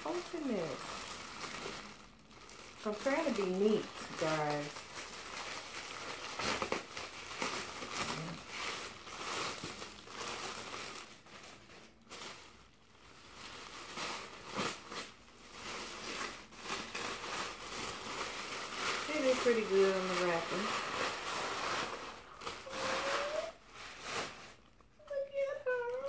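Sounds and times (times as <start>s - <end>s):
plastic wrapping crinkling: 0.0s - 26.0s.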